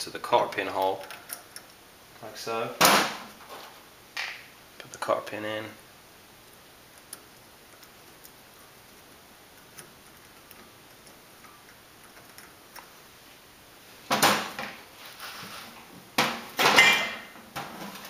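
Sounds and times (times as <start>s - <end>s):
small metal clicks: 9.6s - 12.9s.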